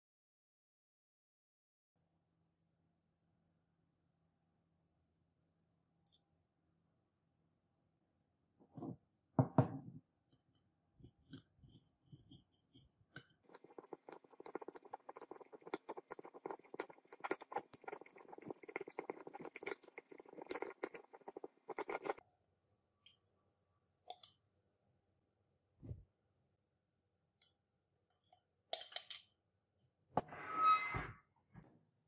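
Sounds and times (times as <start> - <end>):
metal spatula scraping in glass beaker: 13.2 - 22.2, 30.2 - 31.2.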